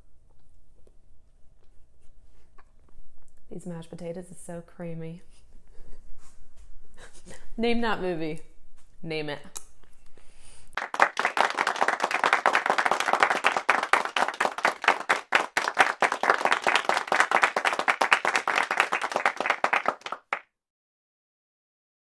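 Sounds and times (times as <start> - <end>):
hands clapping: 10.8 - 20.4.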